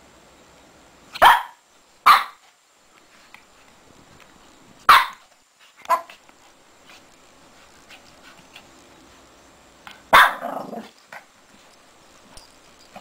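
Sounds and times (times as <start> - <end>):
puppy barking: 1.2 - 2.4, 4.9 - 5.2, 5.9 - 6.2, 10.1 - 10.9
faint scratching in bed: 5.6 - 9.3
puppy growling: 10.3 - 11.0.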